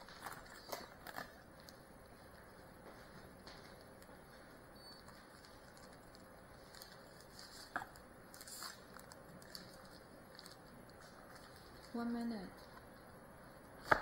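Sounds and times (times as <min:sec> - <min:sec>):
paper wrapping rustling: 0:00.0 - 0:01.8, 0:05.0 - 0:12.4.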